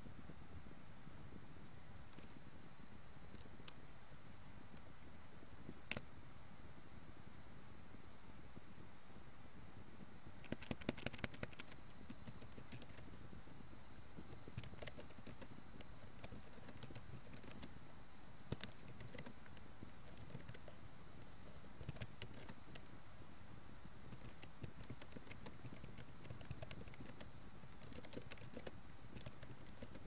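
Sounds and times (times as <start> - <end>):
steady hiss: 0.0 - 30.0
keyboard typing clicks: 10.4 - 13.0, 14.5 - 17.7, 18.5 - 22.9, 24.1 - 30.0.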